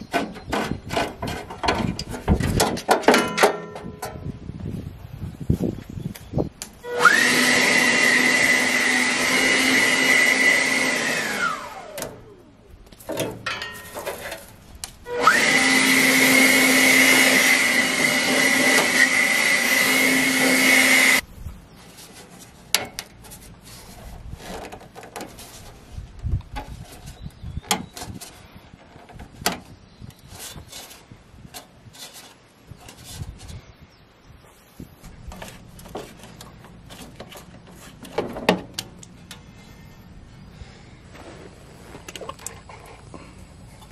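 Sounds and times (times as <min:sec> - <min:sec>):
leaf blower motor whine: 0:06.8 - 0:12.5, 0:15.1 - 0:21.2.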